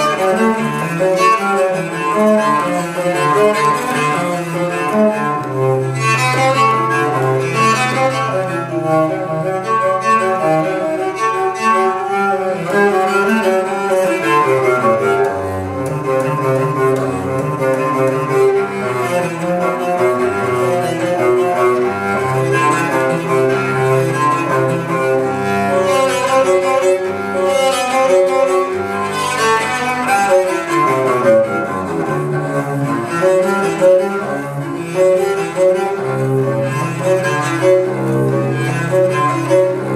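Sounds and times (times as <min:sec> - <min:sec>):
bowed cello melody: 0:00.0 - 0:39.9.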